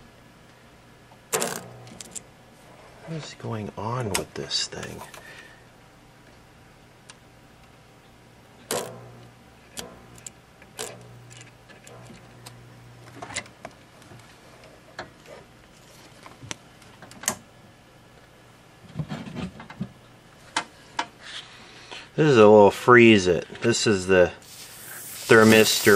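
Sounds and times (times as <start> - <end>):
tools clicking and knocking: 8.7 - 9.0.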